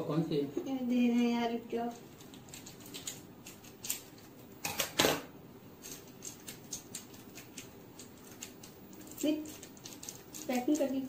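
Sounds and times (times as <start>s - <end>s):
plastic wrapper crinkling: 2.1s - 5.0s, 5.8s - 11.0s.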